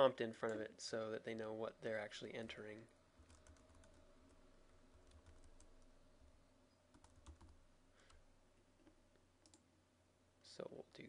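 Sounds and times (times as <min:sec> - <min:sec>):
faint keyboard typing: 0:00.3 - 0:01.6, 0:02.4 - 0:09.7.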